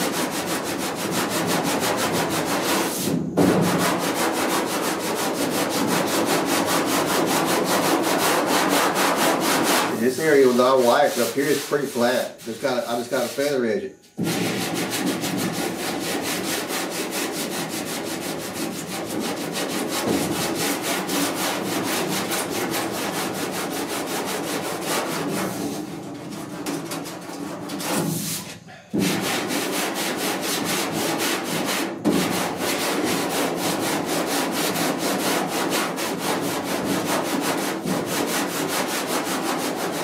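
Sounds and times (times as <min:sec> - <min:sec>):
sanding block rubbing on filler: 0:00.0 - 0:40.0.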